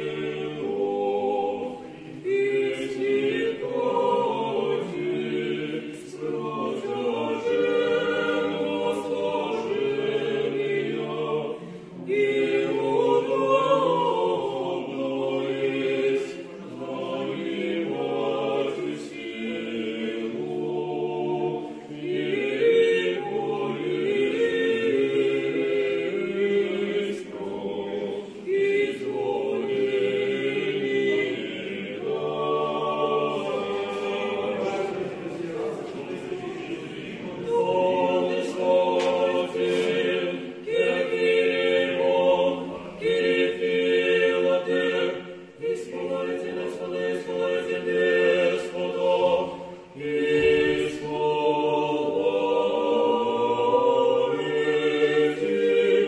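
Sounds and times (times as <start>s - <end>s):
choir chanting unaccompanied: 0.0s - 56.0s.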